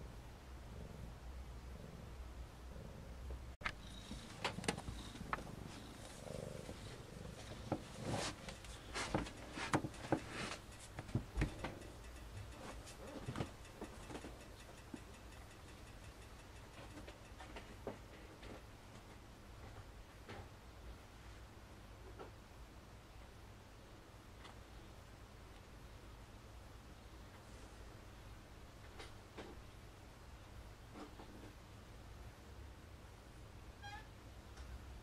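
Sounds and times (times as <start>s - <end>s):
cat purring: 0.0s - 10.5s
soft clicks and rustles: 3.6s - 22.4s.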